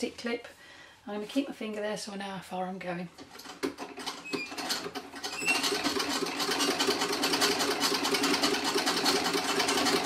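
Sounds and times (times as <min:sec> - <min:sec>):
treadle sewing machine clatter: 0:03.3 - 0:10.0.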